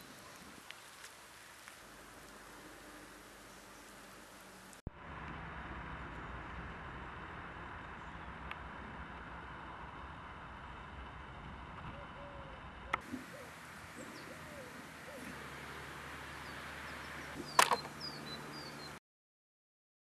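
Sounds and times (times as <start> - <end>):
low cooing bird calls: 11.8 - 19.0
high falling bird chirps: 13.0 - 19.0
sharp click: 17.5 - 17.9.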